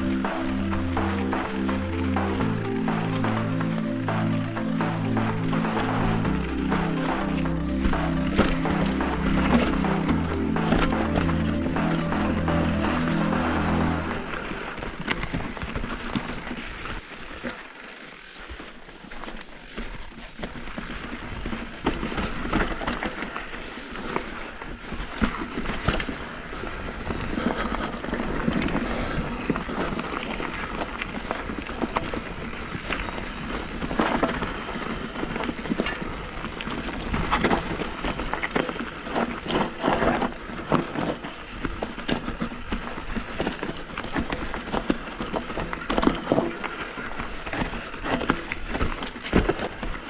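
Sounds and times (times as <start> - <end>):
bike rattling over bumps: 24.8 - 50.0.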